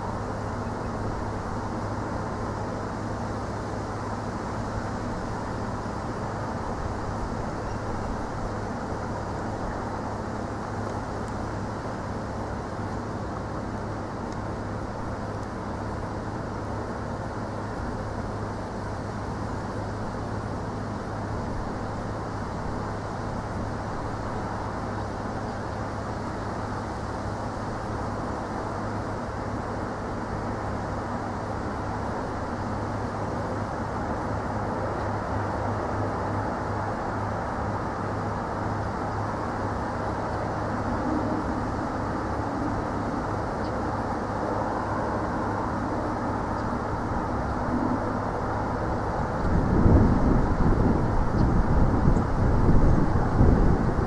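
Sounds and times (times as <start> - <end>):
outdoor background rumble: 0.0 - 54.0
low hum: 38.4 - 54.0.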